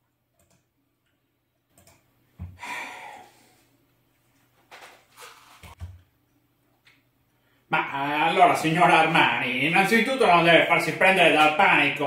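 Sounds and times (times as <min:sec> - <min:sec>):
breathy sigh: 0:02.5 - 0:03.7.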